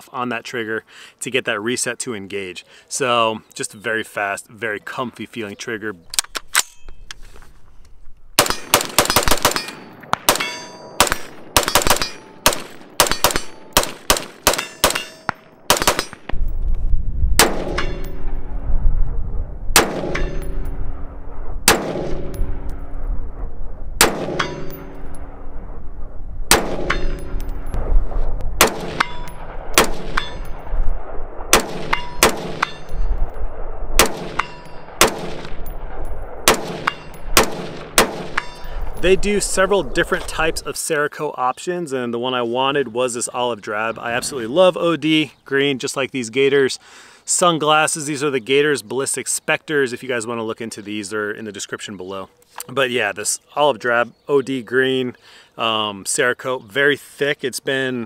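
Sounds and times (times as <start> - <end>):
rifle gunshots: 8.4 - 16.4, 17.4 - 18.5, 19.7 - 23.0, 24.0 - 25.6, 26.5 - 38.6
steel targets ringing: 9.6 - 12.4, 14.6 - 16.2, 24.3 - 25.1, 38.3 - 38.8
low rumble: 16.1 - 40.8.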